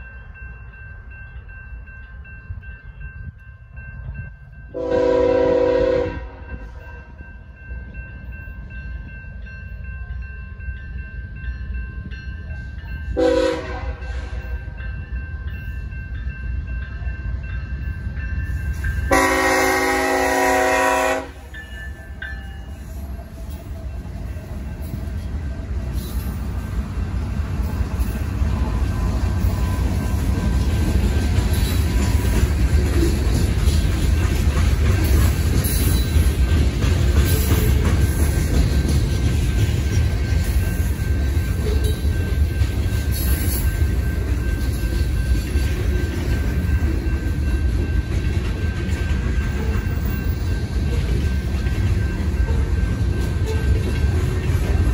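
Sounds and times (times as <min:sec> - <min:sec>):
crossing warning bell ringing: 0:00.0 - 0:54.9
locomotive rumble: 0:00.0 - 0:54.9
locomotive air horn blasts: 0:04.8 - 0:06.5, 0:13.2 - 0:14.5, 0:19.1 - 0:21.5.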